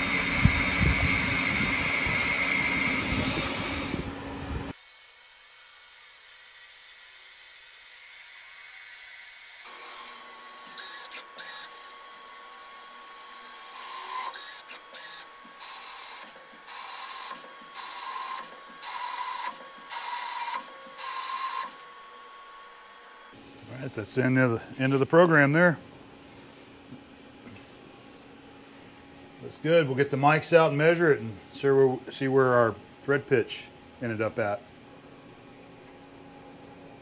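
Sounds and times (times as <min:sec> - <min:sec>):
turning noise: 0:00.0 - 0:04.7
lathe whine: 0:00.0 - 0:04.8, 0:08.2 - 0:23.4
metal cutting noise: 0:00.0 - 0:23.4.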